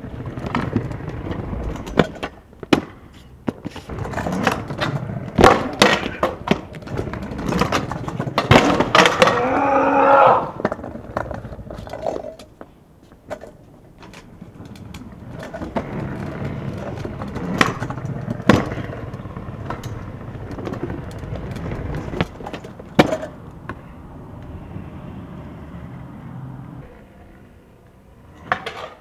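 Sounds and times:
scooter clacking on pavement: 0.0s - 24.7s, 28.3s - 29.0s
scooter wheels rolling on bricks: 0.0s - 29.0s.

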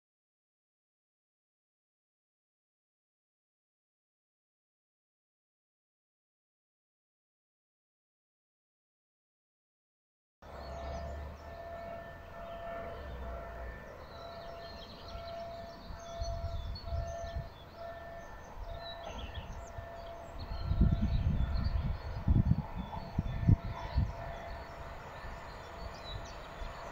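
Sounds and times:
level crossing warning tone: 10.5s - 26.8s
birds chirping: 10.5s - 26.9s.

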